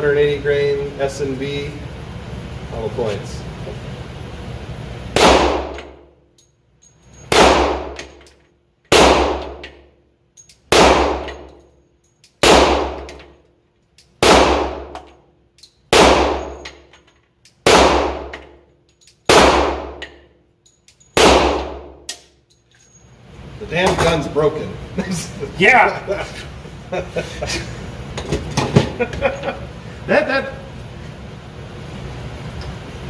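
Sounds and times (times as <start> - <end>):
pistol shots echoing: 5.2 - 6.0, 7.3 - 8.0, 8.9 - 9.6, 10.7 - 11.5, 12.4 - 13.2, 14.2 - 15.0, 15.9 - 16.6, 17.6 - 18.4, 19.3 - 20.0, 21.2 - 22.2.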